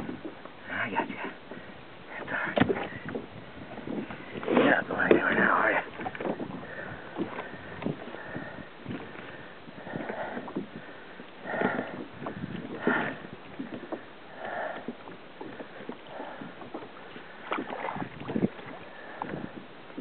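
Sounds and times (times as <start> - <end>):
water sloshing against kayak hull: 0.0 - 20.0.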